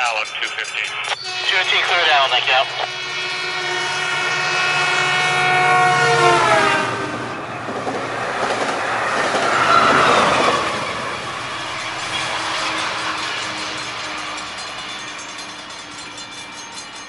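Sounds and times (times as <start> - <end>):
passing train cars: 0.0 - 17.0
train horn: 1.2 - 7.5.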